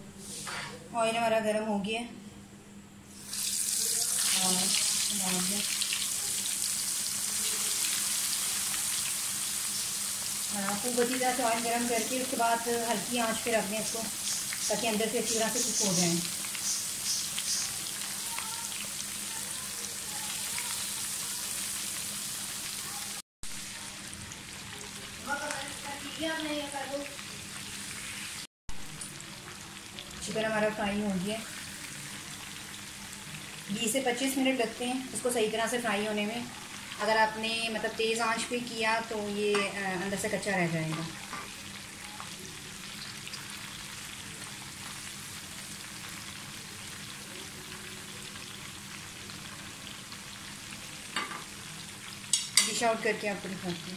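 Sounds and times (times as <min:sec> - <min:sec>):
chicken deep-frying in oil: 0:03.2 - 0:53.9.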